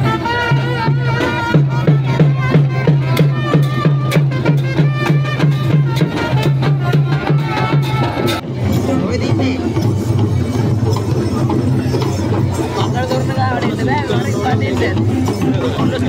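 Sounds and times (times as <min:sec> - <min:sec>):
reedy pipe melody: 0:00.0 - 0:08.6
steady drum beat: 0:00.0 - 0:16.0.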